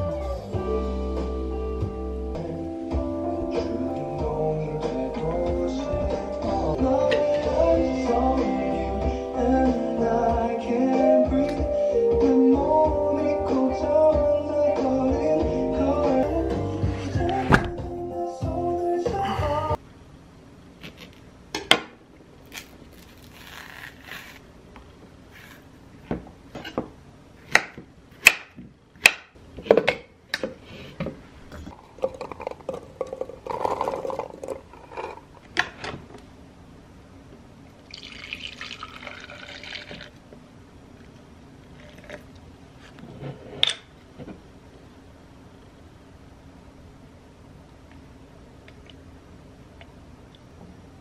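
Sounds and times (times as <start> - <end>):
milk pouring into jar: 37.9 - 40.2.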